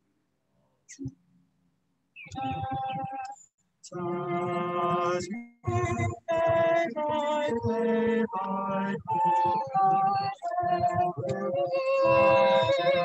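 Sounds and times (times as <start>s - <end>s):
choir singing a cappella: 3.9s - 13.0s.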